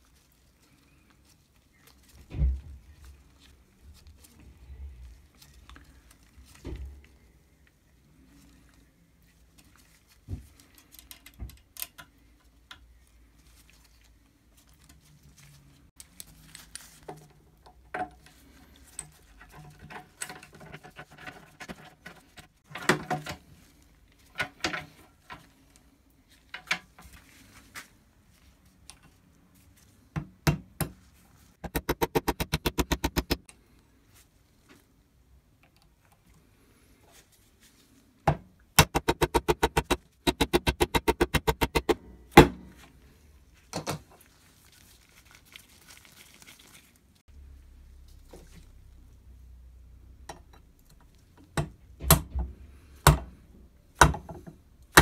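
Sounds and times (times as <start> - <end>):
rapid metallic taps: 31.6 - 33.4, 38.8 - 42.0.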